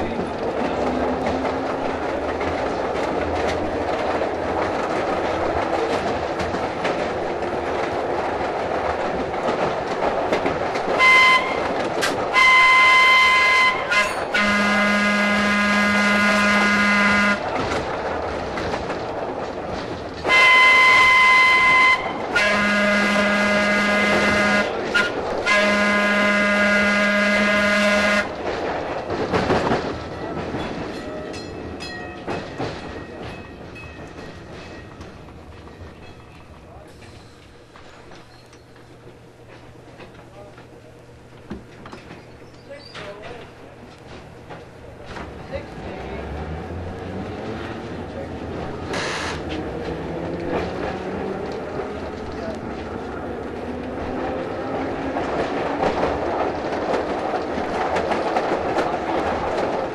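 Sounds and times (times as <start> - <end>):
rail-joint clicks: 0.0 - 14.5, 27.5 - 59.9
rail car rumble: 0.0 - 59.9
train air whistle blasts: 11.0 - 11.6, 12.3 - 17.4, 20.3 - 28.2.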